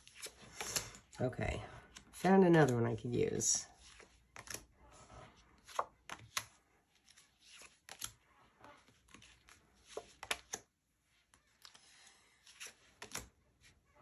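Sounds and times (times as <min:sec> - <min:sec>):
cards flicking and slapping: 0:00.0 - 0:01.2, 0:03.8 - 0:04.7, 0:05.6 - 0:13.4.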